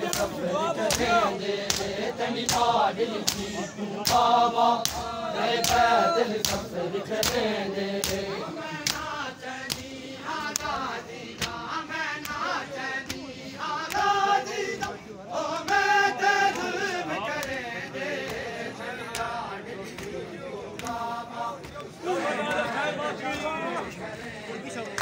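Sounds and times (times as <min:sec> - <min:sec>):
rhythmic chest-beating strikes: 0:00.0 - 0:16.8
men chanting in unison: 0:00.0 - 0:25.0.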